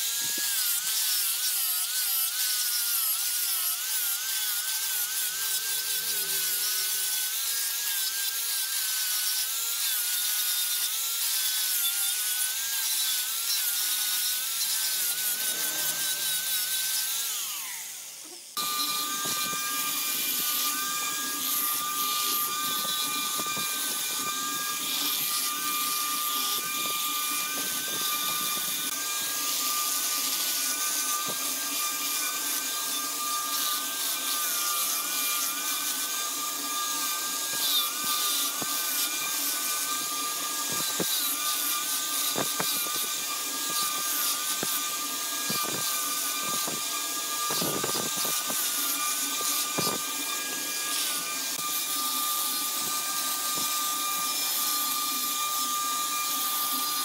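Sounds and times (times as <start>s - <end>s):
angle grinder motor whining: 0.0s - 57.0s
sanding drum hissing on wood: 13.5s - 57.0s.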